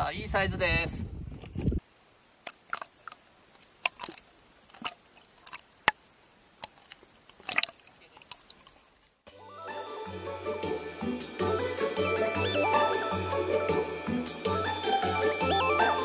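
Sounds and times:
underwater clicks and pops: 2.4 - 6.0, 6.6 - 9.2.

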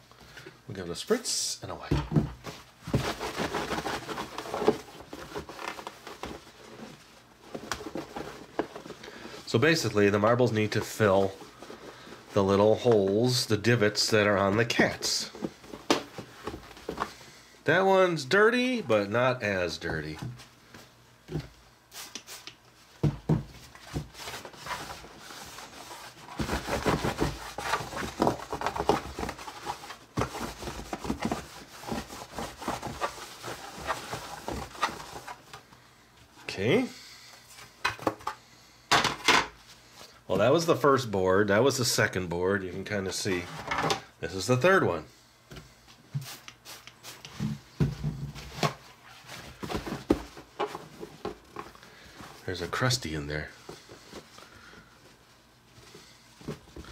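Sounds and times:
paper towels rustling: 1.1 - 21.0, 23.7 - 35.8.

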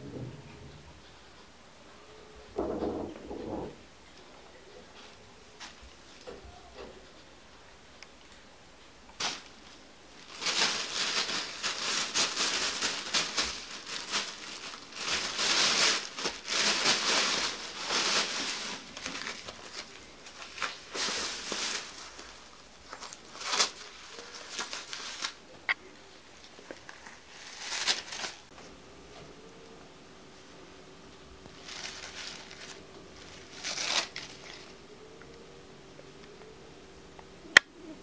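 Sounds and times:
plastic bag rustling and crinkling: 5.0 - 6.6, 9.1 - 28.7, 31.4 - 34.9.

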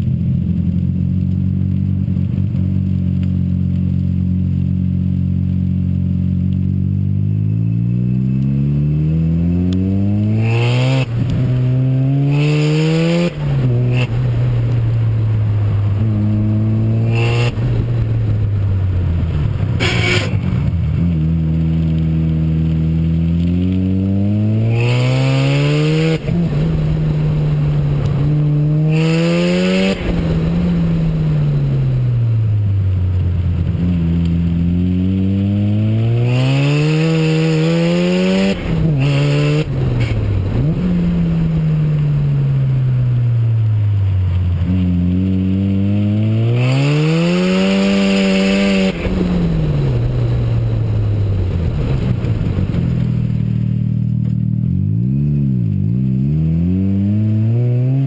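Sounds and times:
rotary engine revving hard: 8.6 - 14.4, 16.1 - 17.9, 23.4 - 31.8, 34.6 - 41.6, 44.6 - 52.7.

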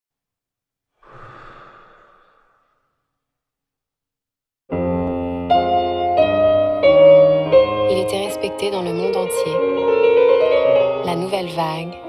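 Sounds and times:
piano chords: 4.7 - 12.0.

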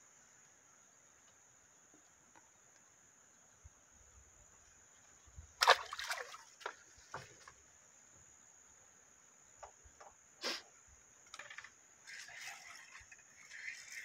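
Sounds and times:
splashes in pond water: 5.6 - 7.6.

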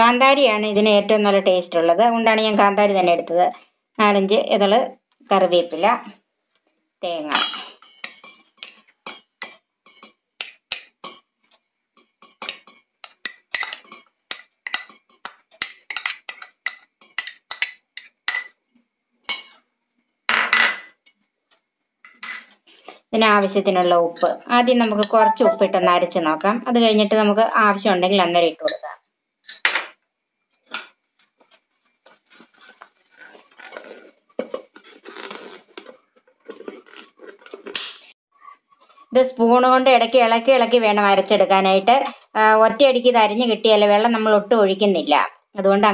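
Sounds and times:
metal spoon clinking on bowls: 12.2 - 18.6.

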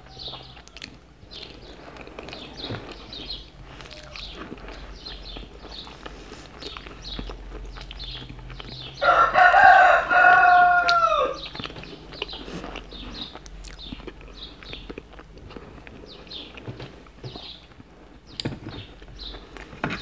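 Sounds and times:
rooster crowing: 0.0 - 0.8, 9.0 - 11.5
wet chewing and mouth smacking: 0.0 - 9.0, 10.3 - 19.8.

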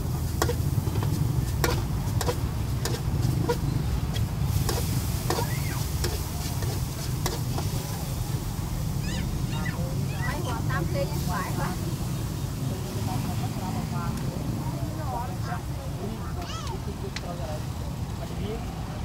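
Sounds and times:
metal spatula scraping a wok: 0.0 - 8.2
food sizzling in a pan: 0.0 - 13.7.

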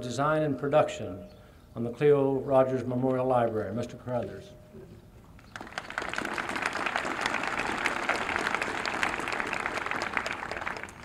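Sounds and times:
audience applauding: 5.5 - 11.0.

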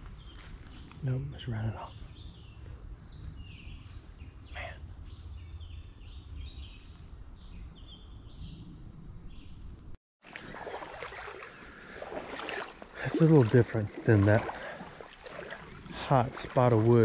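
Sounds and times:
birds chirping and whistling: 0.2 - 9.6.

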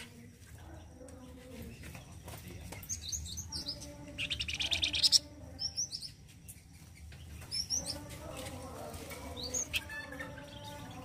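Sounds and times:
songbird chirping: 0.0 - 11.0
harsh buzzing bird trill: 2.9 - 6.2.

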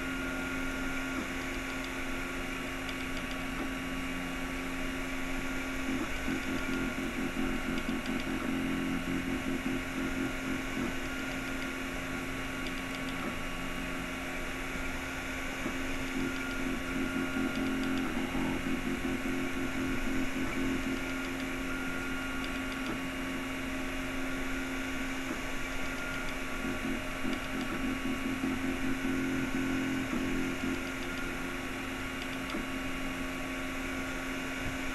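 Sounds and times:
cooling fan hum: 0.0 - 34.9
stepper motors whining: 5.4 - 34.0.

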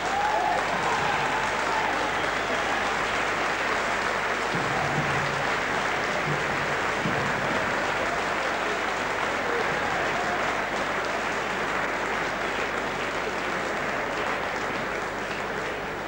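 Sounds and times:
crowd applauding: 0.0 - 16.0.

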